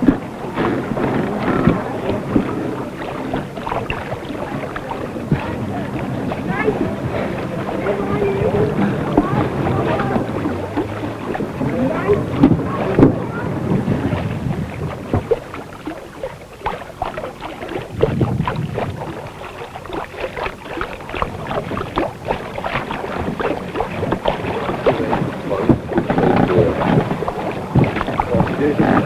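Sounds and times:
canvas sail rustling and flapping: 0:00.0 - 0:29.0
wind buffeting microphone: 0:00.0 - 0:29.0.

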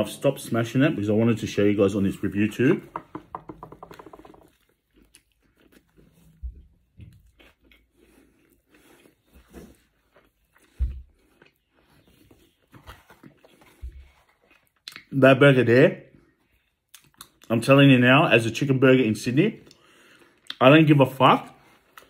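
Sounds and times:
dull thumps: 0:02.8 - 0:04.5
person chewing with wet crunches: 0:04.2 - 0:15.3, 0:16.2 - 0:17.8, 0:19.6 - 0:20.8, 0:21.5 - 0:22.0.

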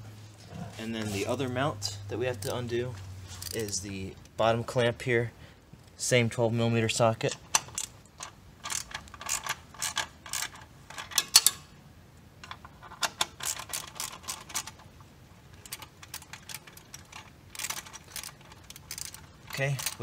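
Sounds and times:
socket ratchet clicking: 0:07.4 - 0:11.6, 0:12.4 - 0:14.8, 0:15.6 - 0:20.0.

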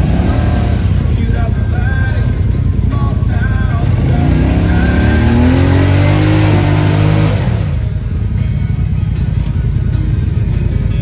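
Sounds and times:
quad engine revving: 0:00.0 - 0:08.3.

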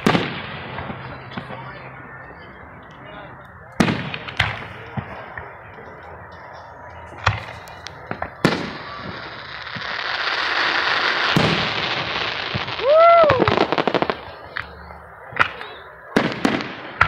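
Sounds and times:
firework hissing and crackling: 0:07.4 - 0:14.5.

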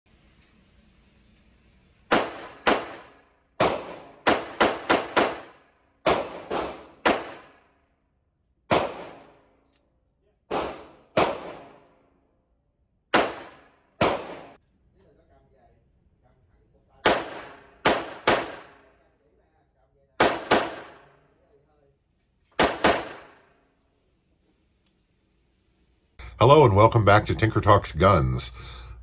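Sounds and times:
pistol shots echoing indoors: 0:02.1 - 0:08.0, 0:08.6 - 0:14.6, 0:17.0 - 0:19.2, 0:20.1 - 0:23.9.

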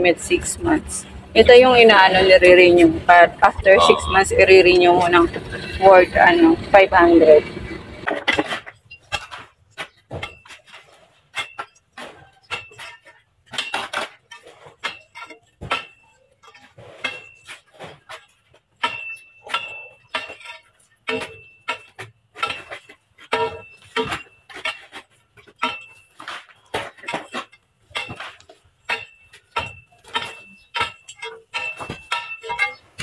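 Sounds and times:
steel bar striking gravelly soil: 0:12.5 - 0:33.0.

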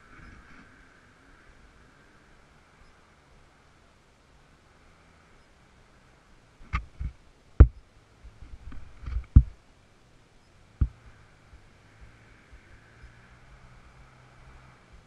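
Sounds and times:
dull knocks and thumps: 0:06.7 - 0:09.6.

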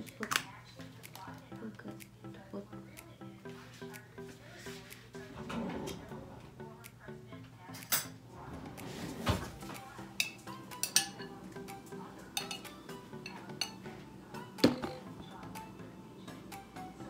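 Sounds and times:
dishes and cutlery clinking: 0:04.7 - 0:06.5, 0:07.6 - 0:15.1.

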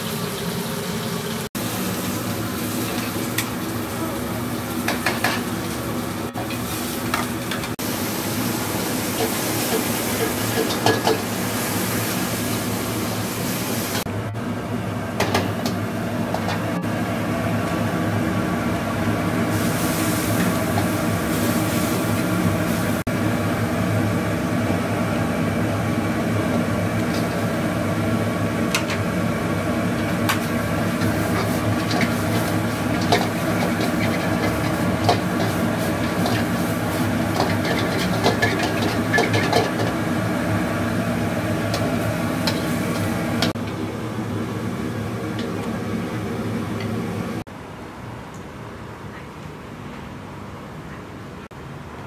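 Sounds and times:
gas burner roaring and hissing: 0:00.0 - 0:47.5.

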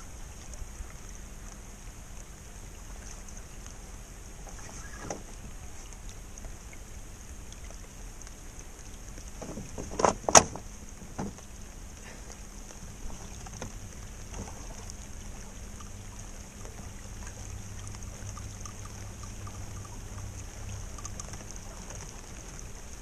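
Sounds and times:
water around boat hull: 0:00.0 - 0:23.0
knocks and thuds against boat: 0:09.4 - 0:11.4.

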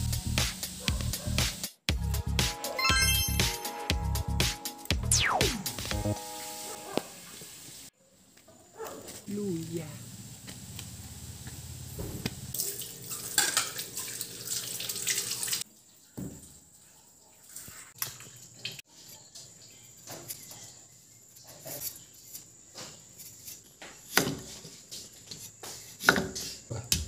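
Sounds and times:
tap water running: 0:12.5 - 0:18.8.

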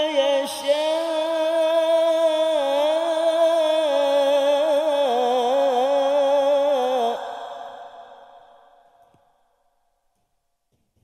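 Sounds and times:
man reciting melodically: 0:00.0 - 0:08.5.

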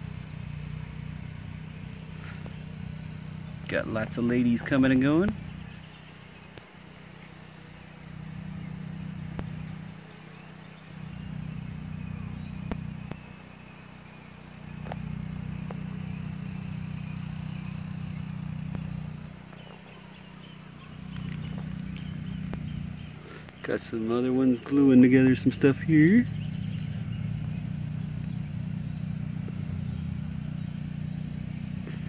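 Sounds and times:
honeybees buzzing: 0:00.0 - 0:32.0
faint clicks: 0:21.1 - 0:22.7.

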